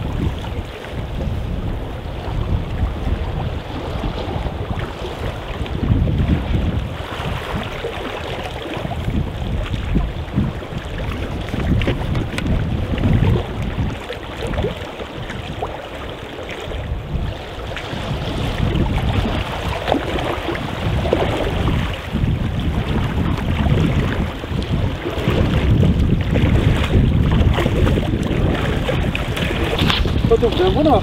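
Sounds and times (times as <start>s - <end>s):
wind buffeting microphone: 0.0s - 31.0s
small waves lapping on rocks: 1.9s - 31.0s
footsteps splashing in shallow water: 3.3s - 31.0s.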